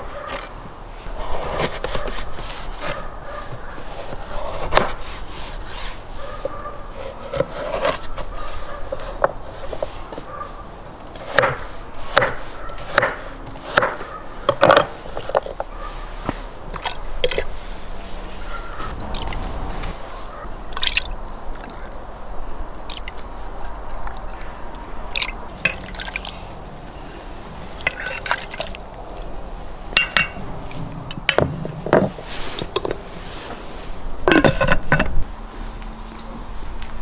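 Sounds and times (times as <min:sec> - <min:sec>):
knife chopping on wooden board: 0:11.2 - 0:14.8.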